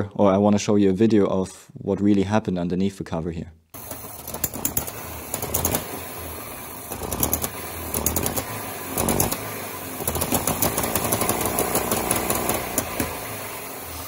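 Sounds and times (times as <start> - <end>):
rapid engine ticking: 3.8 - 14.0
two-stroke engine running: 3.8 - 14.0.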